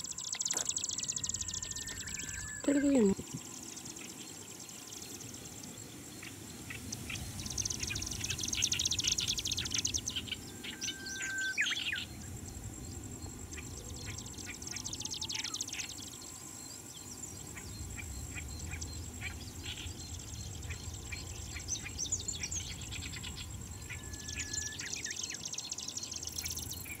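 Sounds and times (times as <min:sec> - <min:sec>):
bird song with buzzy phrases: 0:00.0 - 0:27.0
other birds singing: 0:00.0 - 0:27.0
long level whistle: 0:01.0 - 0:03.0, 0:10.4 - 0:12.0, 0:23.7 - 0:25.3.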